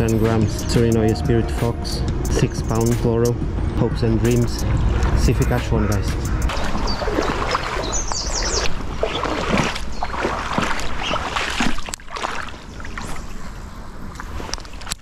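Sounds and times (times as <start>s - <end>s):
shallow river flowing: 3.4s - 15.0s.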